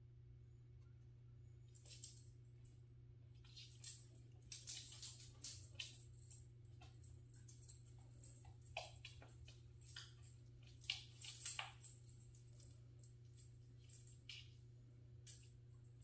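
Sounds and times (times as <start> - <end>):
puppy claws clicking on wood floor: 3.4 - 12.8.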